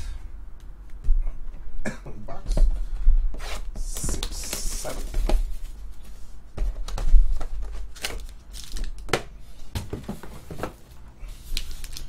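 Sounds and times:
foil wrappers rustling: 7.4 - 9.0, 10.4 - 12.0.

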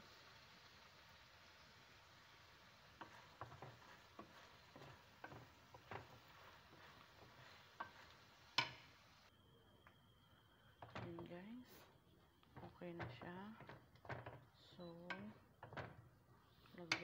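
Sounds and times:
meat sizzling in a pan: 0.0 - 9.3
spatula scraping a pan: 2.8 - 9.0.

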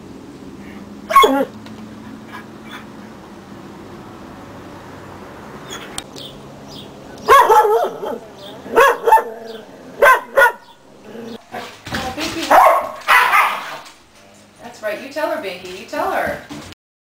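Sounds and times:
dog barking: 1.1 - 1.5, 7.2 - 10.8, 12.5 - 13.8.

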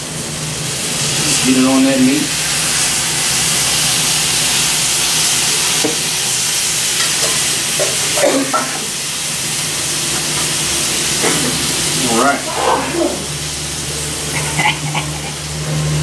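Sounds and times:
meat sizzling on griddle: 0.0 - 16.0.

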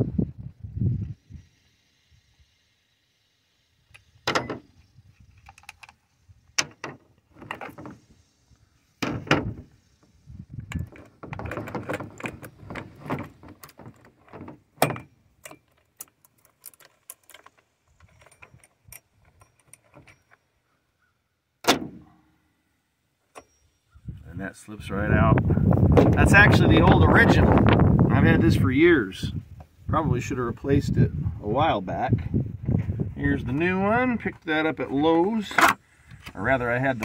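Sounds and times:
clicks and clinks of metal parts: 4.0 - 7.9, 10.6 - 20.5.

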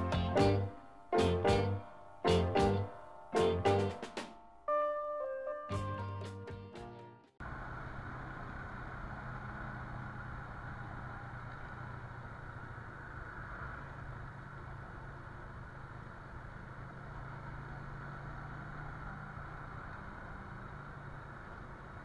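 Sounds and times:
motorcycle engine cruising: 7.4 - 22.0
road and wind noise: 7.4 - 22.0.

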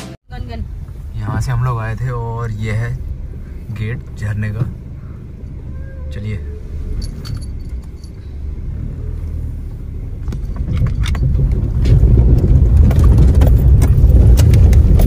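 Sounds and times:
car engine and road rumble: 0.0 - 15.0
rattling clicks in car cabin: 7.0 - 8.2, 10.2 - 15.0.

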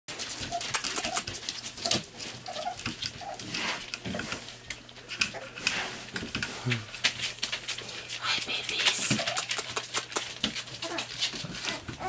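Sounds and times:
sharp clicks and scratching: 0.1 - 12.0
puppies whimpering and yipping: 0.2 - 4.2, 9.0 - 12.0.

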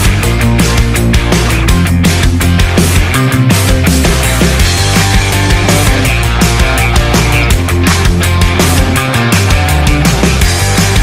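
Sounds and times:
loud rock music: 0.0 - 11.0.

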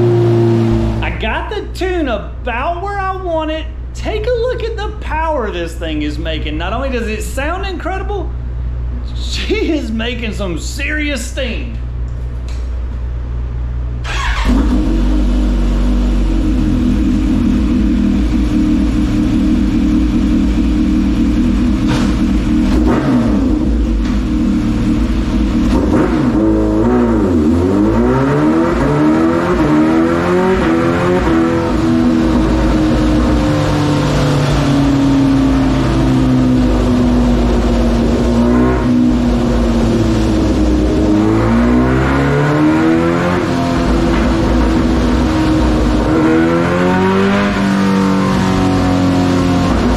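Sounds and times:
motorcycle engine revving: 0.0 - 1.2, 14.0 - 49.9.

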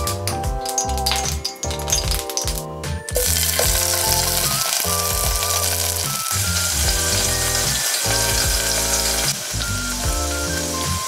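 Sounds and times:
food sizzling in oil: 3.2 - 11.0.

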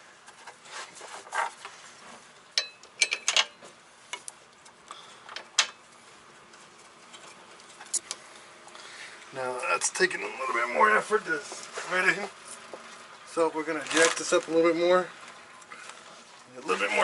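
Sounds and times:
metal bolt clicks and clinks: 2.6 - 3.6.

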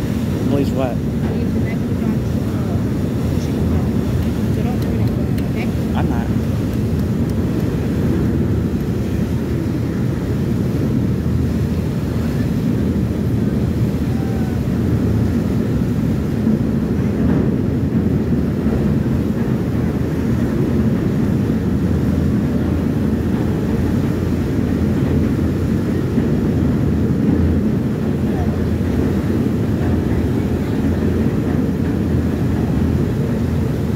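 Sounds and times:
ferry engine rumble: 0.0 - 33.9
propellers churning water: 0.0 - 33.9.

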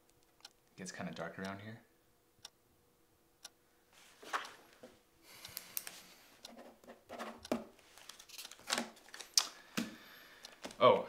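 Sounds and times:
papers rustling: 4.0 - 4.9, 7.2 - 10.0.

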